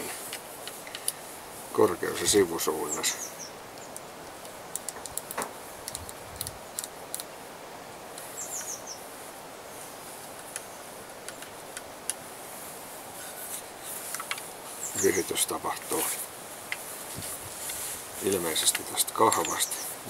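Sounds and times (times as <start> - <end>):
outdoor hiss: 0.0 - 20.0
crossbow clicks and taps: 0.3 - 1.2, 3.7 - 7.3, 10.3 - 12.2, 14.0 - 14.5, 18.5 - 19.7
bird chirping: 2.0 - 4.0, 8.2 - 9.1, 13.2 - 16.2, 18.2 - 20.0.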